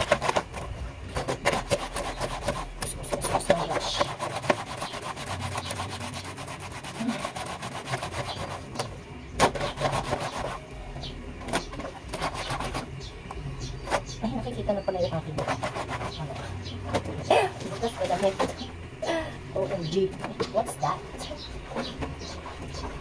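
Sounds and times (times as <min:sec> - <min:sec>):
wet cloth scrubbing: 0:01.2 - 0:10.7, 0:15.2 - 0:16.6.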